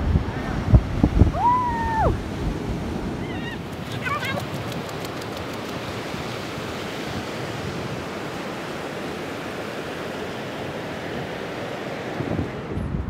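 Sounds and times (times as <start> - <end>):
waves breaking on beach: 0.0 - 13.0.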